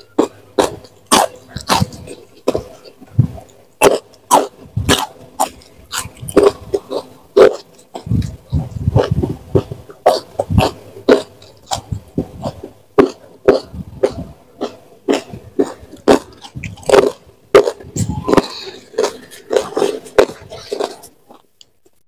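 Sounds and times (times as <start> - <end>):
chewing with wet mouth smacks: 0.0 - 21.8.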